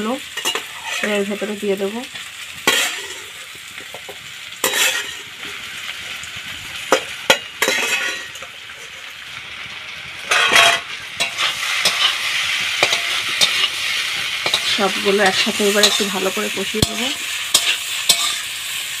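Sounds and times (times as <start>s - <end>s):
food sizzling in a pan: 0.0s - 19.0s
metal spoon scraping pan: 0.3s - 1.5s, 2.6s - 5.5s, 6.9s - 9.1s, 10.3s - 18.7s.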